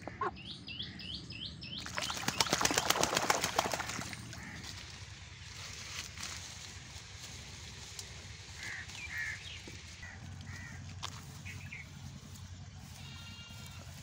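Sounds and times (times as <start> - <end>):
duck splashing and beating wings: 1.8 - 4.8.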